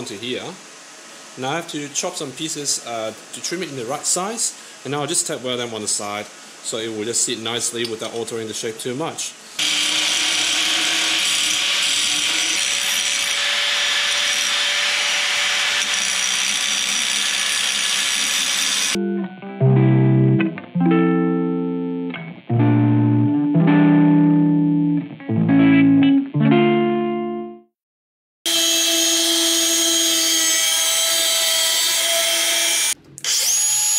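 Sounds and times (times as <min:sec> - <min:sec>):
angle grinder cutting steel: 0:09.6 - 0:19.0, 0:28.5 - 0:33.9
plucked guitar chords: 0:19.0 - 0:27.7.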